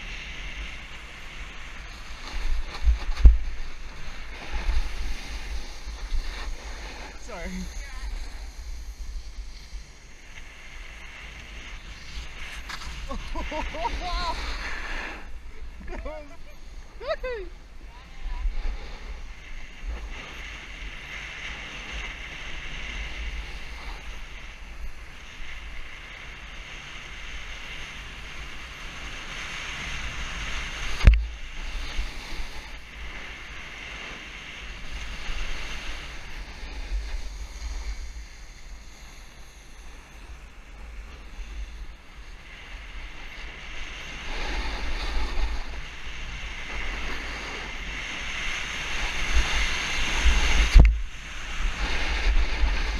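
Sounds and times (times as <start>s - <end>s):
snowboard scraping over snow: 0.0s - 52.9s
wind buffeting microphone: 0.0s - 52.9s.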